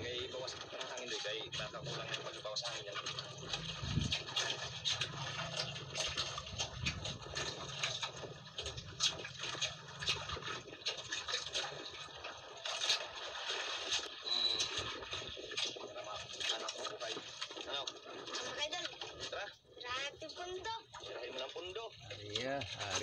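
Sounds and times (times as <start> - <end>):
low steady hum: 0.0 - 10.8
water splashing with live fish: 0.0 - 23.0.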